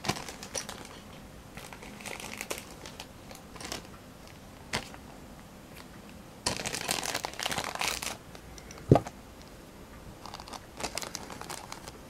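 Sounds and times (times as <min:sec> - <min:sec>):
plastic bag crinkling and tearing: 0:00.0 - 0:01.0, 0:01.6 - 0:03.9, 0:06.4 - 0:08.2, 0:10.2 - 0:12.0.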